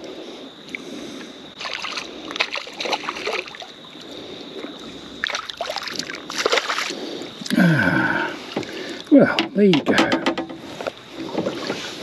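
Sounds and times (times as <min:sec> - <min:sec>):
fish splashing at water surface: 0:01.6 - 0:03.8, 0:05.2 - 0:07.2.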